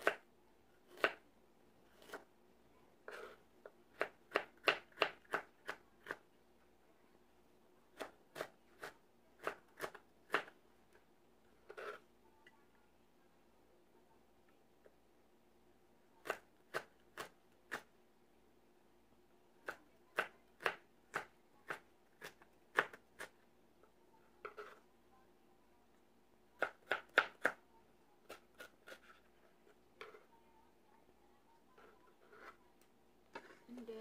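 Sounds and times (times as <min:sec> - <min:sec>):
knife chopping on plastic board: 0:03.1 - 0:06.2, 0:19.6 - 0:23.3, 0:26.6 - 0:27.6.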